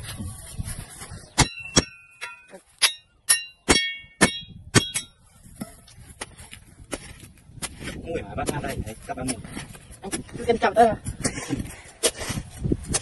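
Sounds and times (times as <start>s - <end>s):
metal hoe blade clanging: 1.4s - 5.8s.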